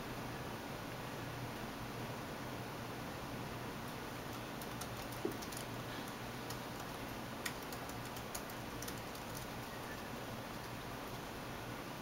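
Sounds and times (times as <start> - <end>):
steady background hiss: 0.0 - 12.0
light irregular clicks: 4.3 - 11.2.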